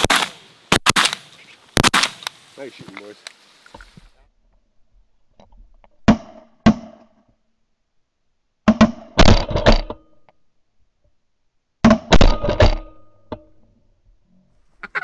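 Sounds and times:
shotgun blasts: 0.0s - 2.3s.

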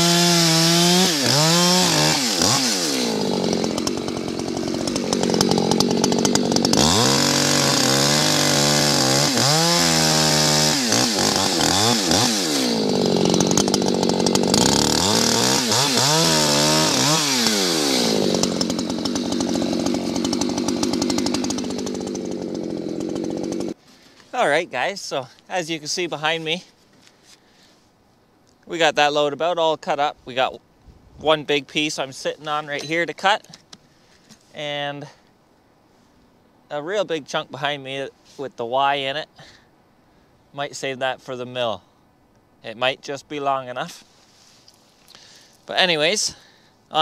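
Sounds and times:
chainsaw cutting logs: 0.0s - 24.2s.

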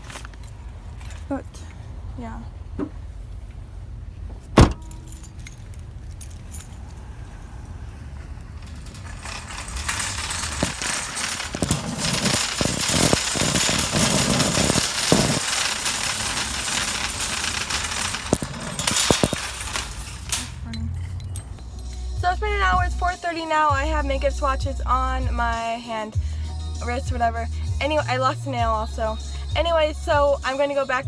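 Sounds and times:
dense rattling and rubbing: 7.9s - 23.2s.

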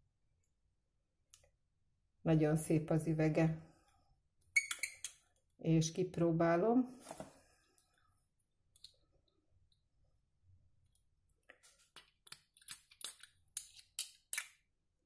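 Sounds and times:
bottle cap clicks and wrap crinkles: 11.5s - 14.6s.

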